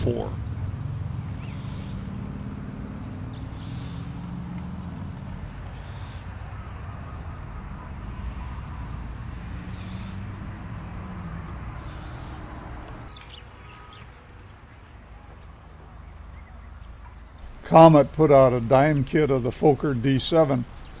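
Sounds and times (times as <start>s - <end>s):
bird chirps: 1.2s - 17.6s, 20.2s - 21.0s.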